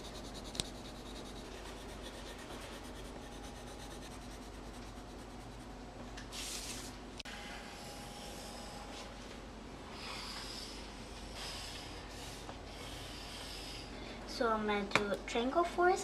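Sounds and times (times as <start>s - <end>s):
pencil scratching on paper: 0.0s - 5.8s.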